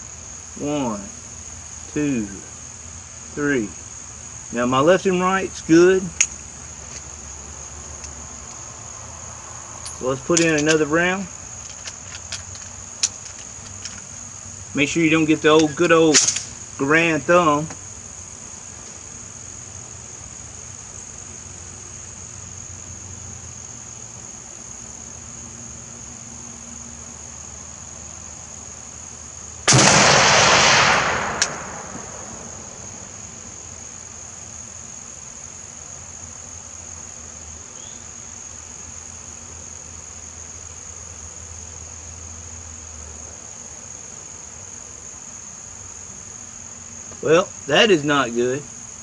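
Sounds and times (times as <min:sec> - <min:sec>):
insects trilling: 0:00.0 - 0:49.0
rifle shot: 0:29.7 - 0:32.7.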